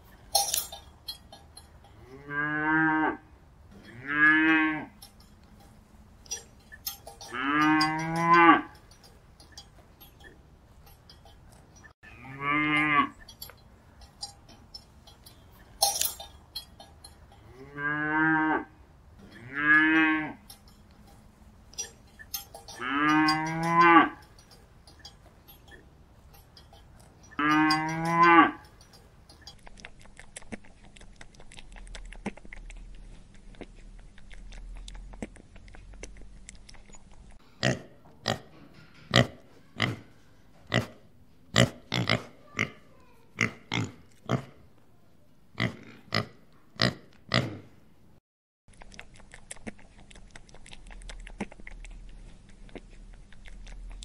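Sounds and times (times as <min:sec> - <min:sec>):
cattle mooing: 0:02.0 - 0:05.1, 0:07.2 - 0:08.8, 0:12.0 - 0:13.2, 0:17.5 - 0:20.6, 0:22.6 - 0:24.2, 0:27.3 - 0:28.7
pig grunts: 0:37.6 - 0:44.6, 0:45.6 - 0:47.7.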